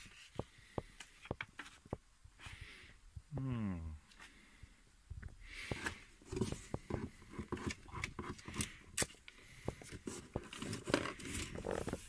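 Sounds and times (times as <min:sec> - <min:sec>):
paper rustling and scraping: 0:09.7 - 0:12.0.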